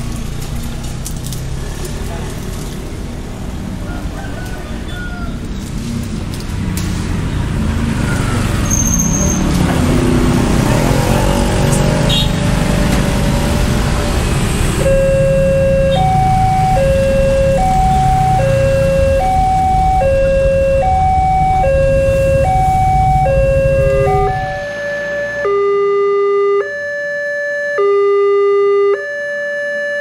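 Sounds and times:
street traffic: 0:00.0 - 0:30.0
level-crossing two-tone alarm: 0:14.8 - 0:30.0.

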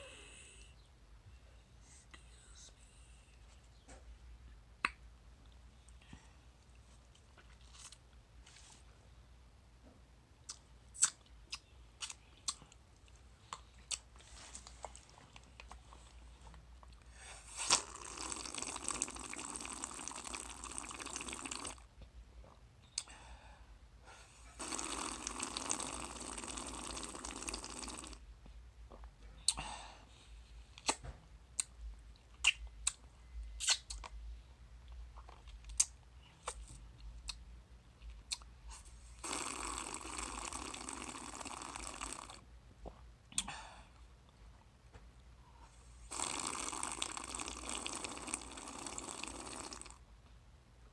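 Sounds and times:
sucking drink through a straw: 0:17.4 - 0:21.9, 0:24.5 - 0:28.2, 0:39.2 - 0:42.4, 0:46.1 - 0:50.0.

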